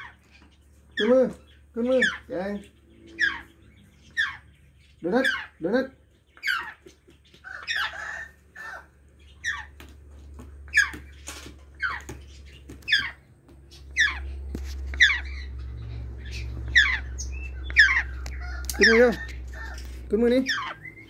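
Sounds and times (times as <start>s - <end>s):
parrot squawking: 0.9s - 6.8s, 7.4s - 9.7s, 10.7s - 11.0s, 11.8s - 12.1s, 12.8s - 13.2s, 13.9s - 21.0s.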